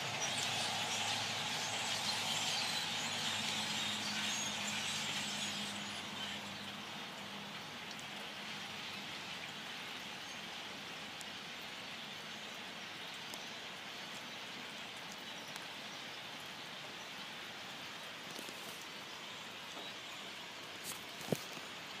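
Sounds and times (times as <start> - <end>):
large flock of birds calling: 0.0 - 6.8.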